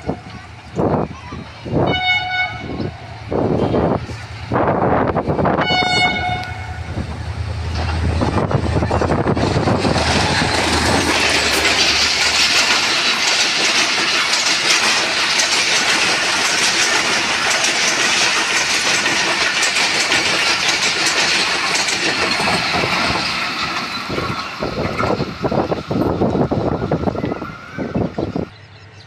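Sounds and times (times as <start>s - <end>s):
train wheels rushing on rail: 0.0s - 29.0s
rapid wheel clatter: 7.1s - 26.8s.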